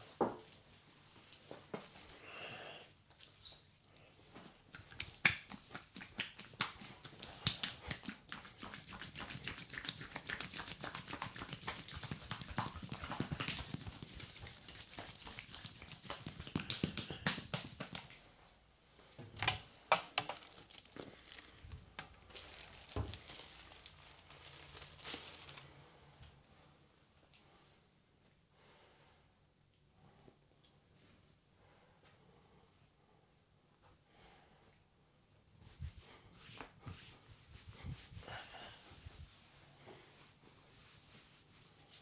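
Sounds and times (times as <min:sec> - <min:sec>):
hands squishing foamy skin: 0:04.1 - 0:18.2, 0:20.3 - 0:25.7.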